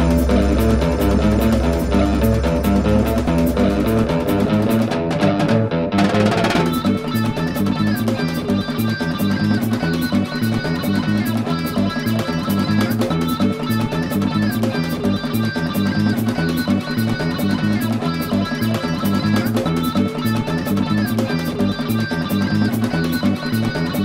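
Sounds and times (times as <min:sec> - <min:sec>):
rising sweep: 0:00.0 - 0:05.1
music with guitar bass and drums: 0:00.0 - 0:24.0.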